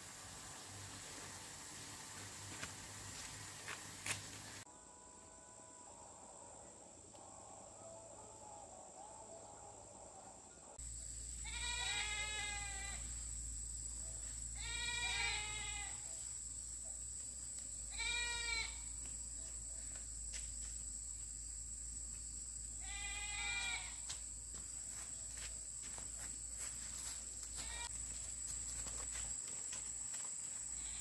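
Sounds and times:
livestock animal bleating: 11.4s - 13.0s, 14.6s - 16.1s, 17.9s - 18.9s, 22.8s - 24.0s, 27.6s - 27.9s, 30.8s - 31.0s.

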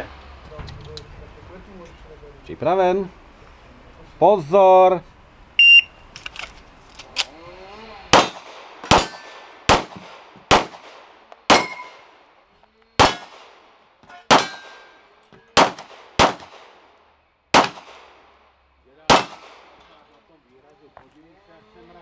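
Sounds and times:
shot timer beep: 5.6s - 6.0s
pistol shots: 8.1s - 12.1s, 13.0s - 16.8s, 17.5s - 18.4s, 19.0s - 19.9s
steel target ringing: 11.5s - 12.0s, 14.1s - 15.1s.

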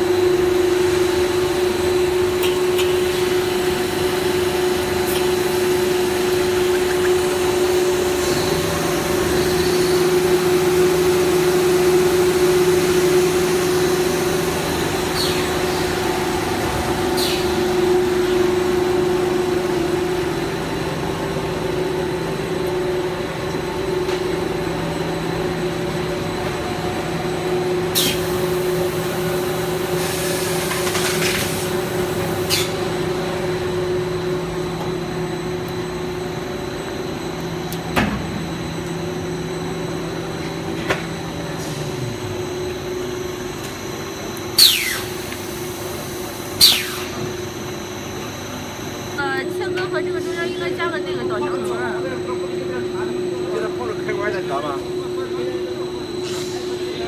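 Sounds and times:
lower machine hum: 0.0s - 57.0s
machine hum and hiss: 0.0s - 57.0s.

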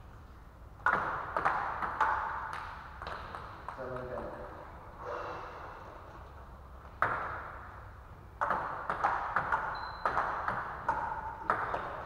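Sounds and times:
table tennis ball clicking: 8.4s - 12.0s.

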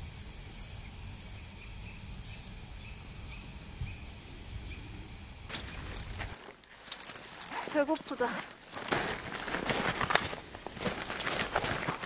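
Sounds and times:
small bird chirping faintly: 0.5s - 6.0s
low wind rumble on microphone: 1.5s - 6.4s.

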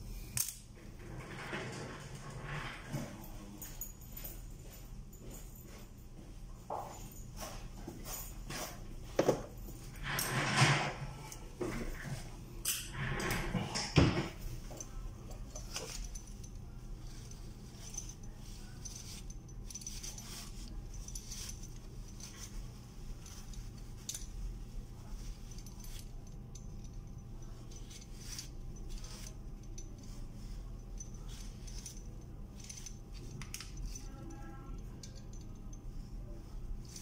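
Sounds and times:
steady low hum: 0.0s - 37.0s
metal part clicks and clinks: 0.3s - 0.6s
tissue rubbing on metal: 14.3s - 37.0s.

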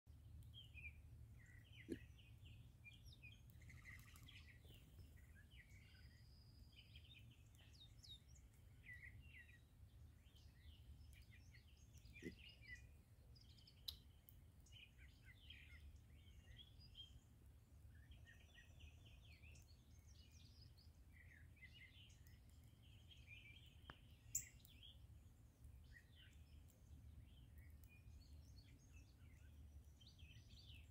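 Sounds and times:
blackbirds chattering: 0.8s - 5.8s, 11.6s - 12.9s.

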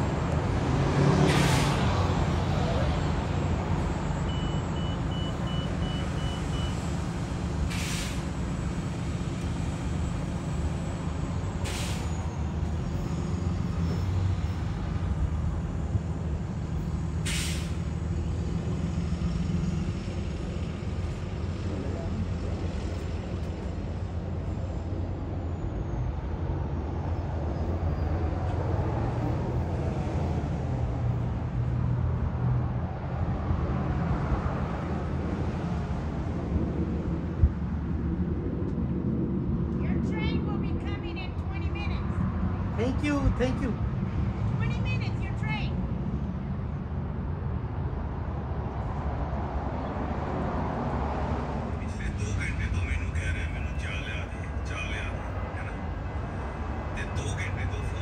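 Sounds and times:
diesel locomotive rumbling: 0.0s - 58.0s
sharp air hisses: 7.7s - 8.4s, 11.6s - 12.2s, 17.2s - 17.8s.

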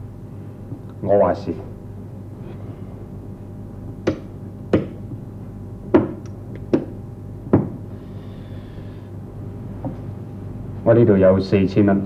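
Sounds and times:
steady low hum: 0.0s - 12.0s
knocks on hard surface: 4.0s - 5.0s, 5.9s - 7.8s.

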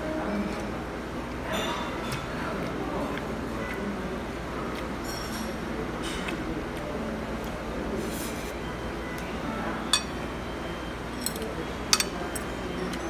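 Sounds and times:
restaurant background hum: 0.0s - 13.0s
metal spoon clinking on dish: 9.9s - 10.2s, 11.1s - 13.0s.

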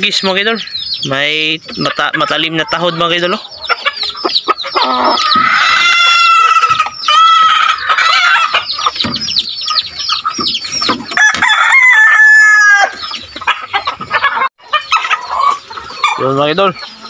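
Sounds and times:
chickens clucking and squawking: 0.0s - 17.0s
rooster crowing: 4.8s - 8.6s, 11.2s - 13.0s.

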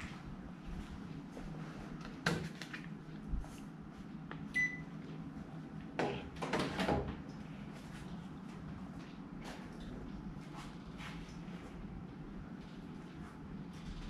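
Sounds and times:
air conditioner electronic beep: 4.5s - 5.1s.

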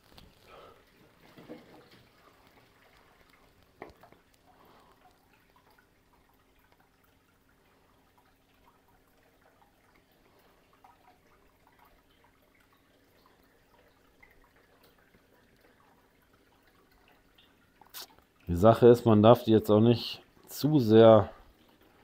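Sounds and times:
faint steady hum: 0.0s - 22.0s
water dripping: 0.0s - 22.0s
water trickling through hose: 0.0s - 22.0s.

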